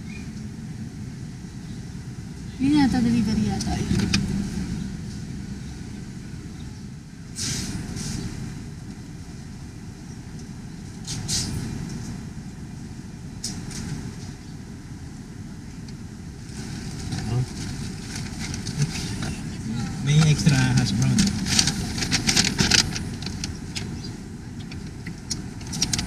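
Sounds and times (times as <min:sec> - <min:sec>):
car engine idling: 0:00.0 - 0:07.4, 0:11.8 - 0:26.0
brief hissing: 0:07.4 - 0:08.3, 0:11.0 - 0:11.6.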